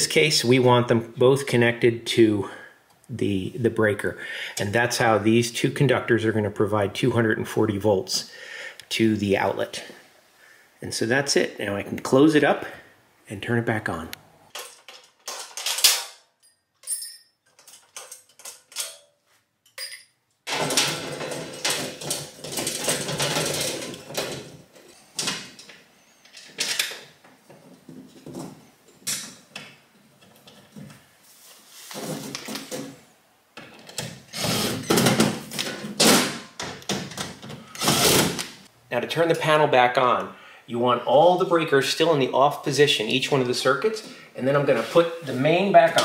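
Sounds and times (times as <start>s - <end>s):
cordless drill driving screws: 34.3s - 34.8s, 37.8s - 38.4s.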